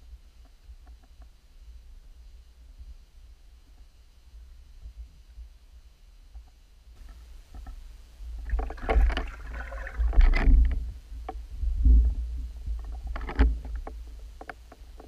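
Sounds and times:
muffled underwater rumble: 0:07.0 - 0:14.4
water sloshing and knocks: 0:08.4 - 0:10.8.

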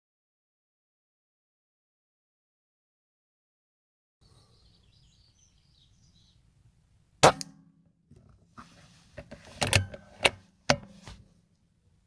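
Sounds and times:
rifle shot: 0:07.2 - 0:07.7.

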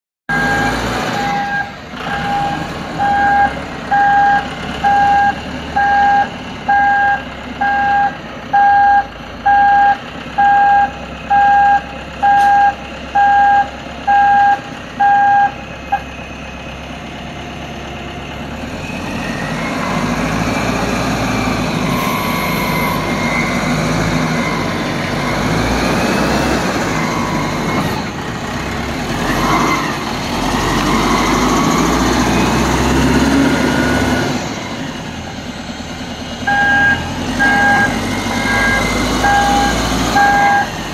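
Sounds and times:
reversing alarm beeping: 0:00.3 - 0:16.1, 0:21.8 - 0:23.6, 0:26.9 - 0:28.0, 0:36.4 - 0:40.8
diesel engine running: 0:00.3 - 0:40.9.

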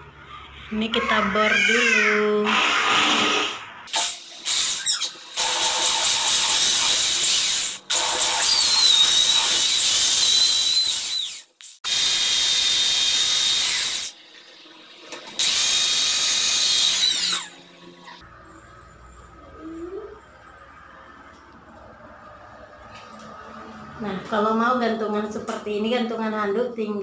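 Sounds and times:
electric drill whining into tile: 0:04.5 - 0:14.1, 0:15.4 - 0:17.6.

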